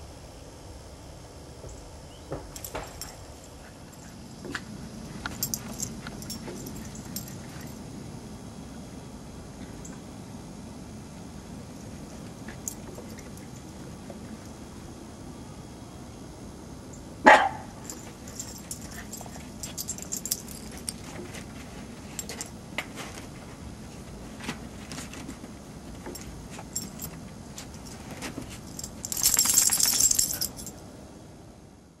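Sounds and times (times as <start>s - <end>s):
small dog barking: 17.2s - 17.8s.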